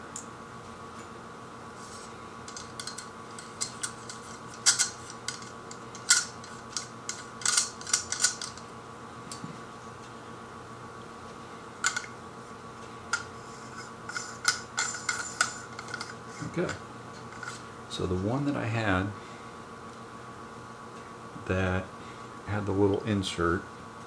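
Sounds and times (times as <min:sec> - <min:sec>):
small metal clicks and scrapes: 0:01.8 - 0:08.6, 0:11.8 - 0:12.1, 0:13.1 - 0:17.6.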